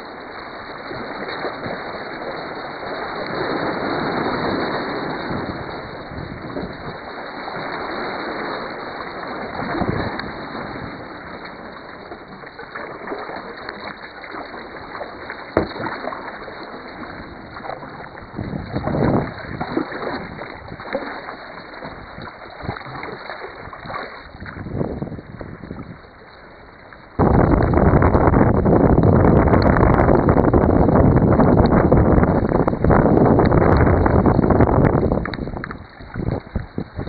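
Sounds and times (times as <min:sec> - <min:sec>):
waves washing against rock: 0:00.0 - 0:26.4, 0:27.2 - 0:37.0
water splashing around kayak: 0:00.0 - 0:37.0.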